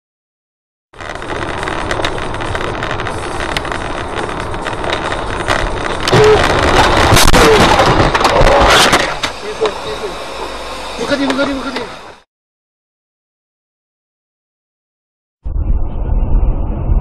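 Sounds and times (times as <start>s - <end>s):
road and wind noise: 1.0s - 12.3s.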